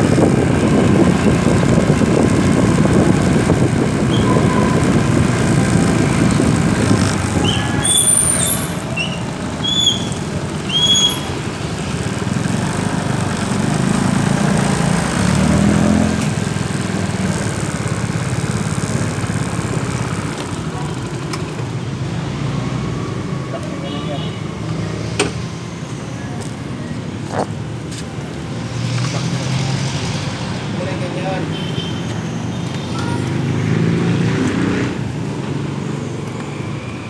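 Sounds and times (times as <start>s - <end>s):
wind rumble on microphone: 0.0s - 7.9s
small motorcycle engine running: 0.0s - 23.3s
short high squeaks: 7.4s - 11.4s.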